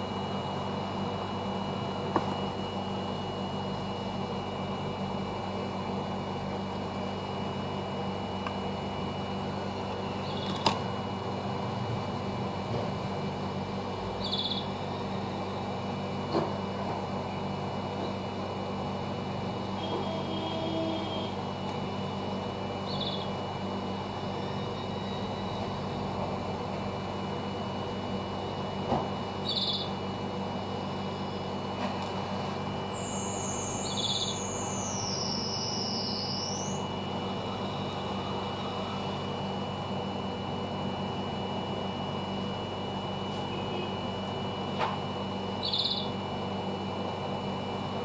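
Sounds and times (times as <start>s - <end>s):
low fan hum: 0.0s - 48.0s
hot-air station blowing: 30.1s - 45.6s.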